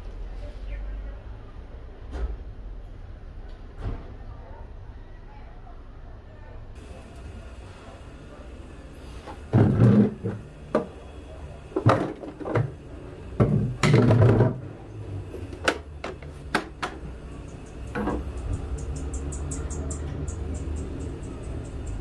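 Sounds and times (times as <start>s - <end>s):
plastic toilet clunks and knocks: 9.5s - 10.9s, 11.8s - 12.8s, 13.4s - 14.8s.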